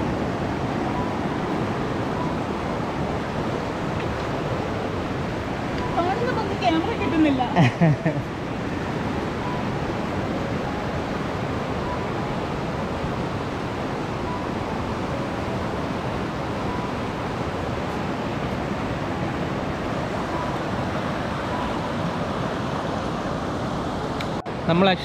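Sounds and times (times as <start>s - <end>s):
mountain river rushing: 0.0s - 25.0s.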